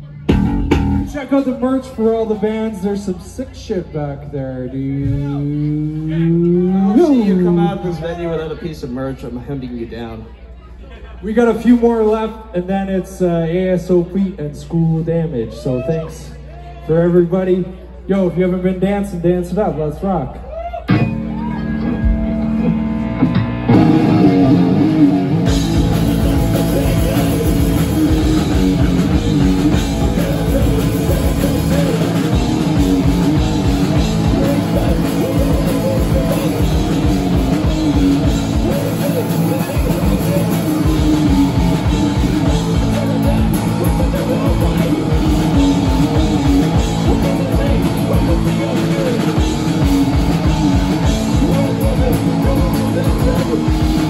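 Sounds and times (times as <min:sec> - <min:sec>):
distorted electric guitar: 0:00.0 - 0:01.6, 0:20.9 - 0:54.0
bass guitar: 0:00.0 - 0:08.9, 0:13.2 - 0:54.0
vocals: 0:00.0 - 0:21.0, 0:23.7 - 0:54.0
fast drum kit: 0:00.3 - 0:02.2, 0:23.7 - 0:54.0.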